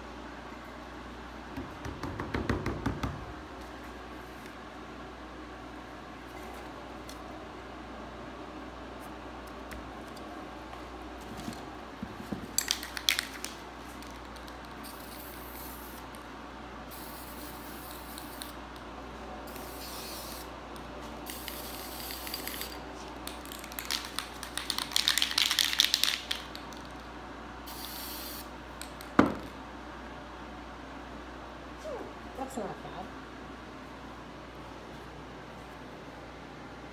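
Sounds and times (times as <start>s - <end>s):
spray paint can hissing: 14.8s - 16.0s, 16.9s - 18.6s, 19.5s - 20.5s, 21.3s - 22.8s, 27.7s - 28.5s.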